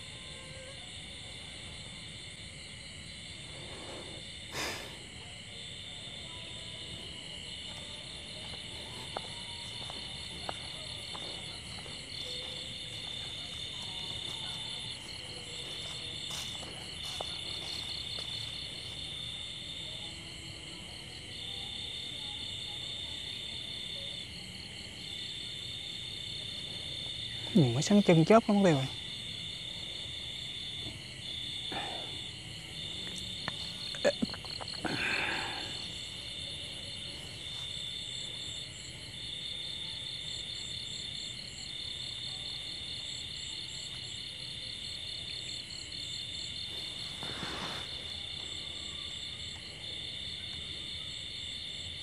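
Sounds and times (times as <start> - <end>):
high-pitched insect drone: 8.2 - 19.5
insect trilling: 31.6 - 36.4.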